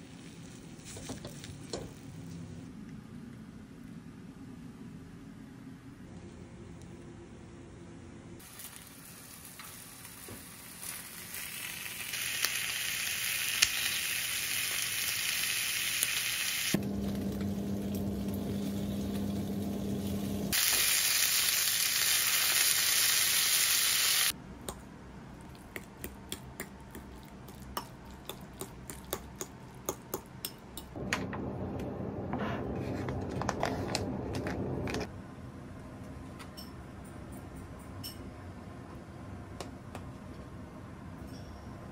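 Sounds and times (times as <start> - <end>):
bacon sizzling in a pan: 8.4 - 24.3.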